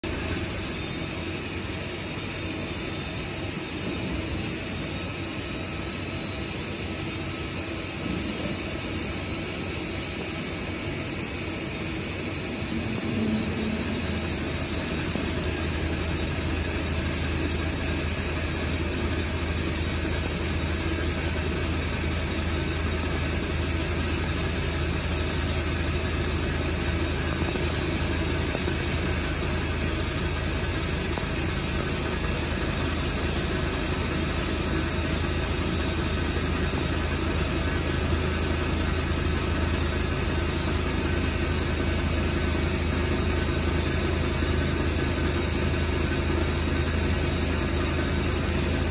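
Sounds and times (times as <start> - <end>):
boring mill mechanical drone: 0.0 - 48.9
deeper hum: 11.2 - 41.4.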